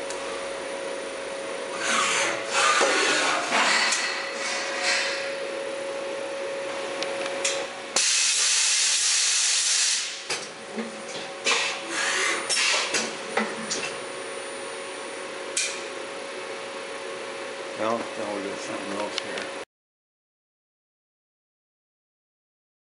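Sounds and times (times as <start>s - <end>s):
machine hum and hiss: 0.0s - 19.7s
loud air hiss: 8.0s - 10.2s.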